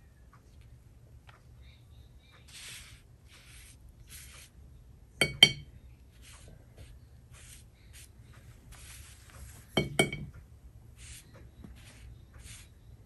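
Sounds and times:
hard object clinking against dish: 5.2s - 5.7s, 9.8s - 10.3s.

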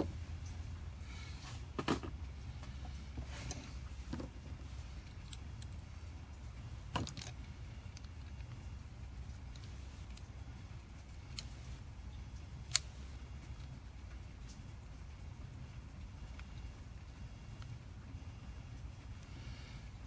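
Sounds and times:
steady low hum: 0.0s - 20.0s
small metal parts clicking: 5.0s - 5.9s, 6.8s - 11.7s, 12.6s - 13.8s.

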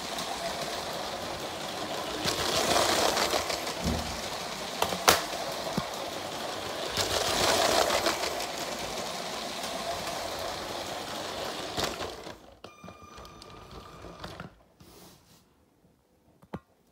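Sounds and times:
toy train rattling along track: 0.0s - 12.6s.

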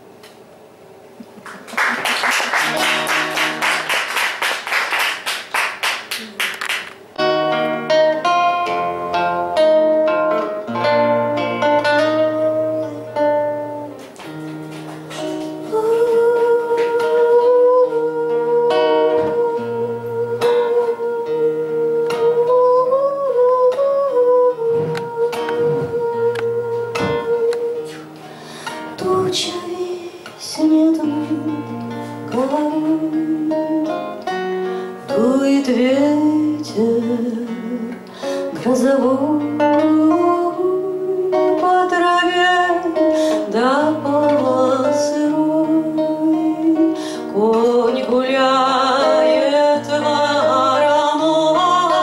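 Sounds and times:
nylon-string guitar: 2.6s - 4.1s, 6.6s - 52.0s
woman singing: 15.4s - 52.0s.

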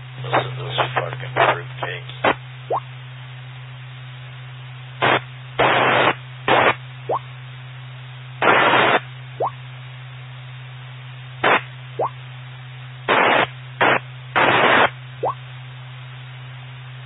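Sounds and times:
steady low hum: 0.0s - 17.0s
radio static bursts: 0.2s - 2.8s, 5.0s - 6.8s, 8.4s - 9.0s, 11.4s - 11.7s, 13.1s - 15.0s.

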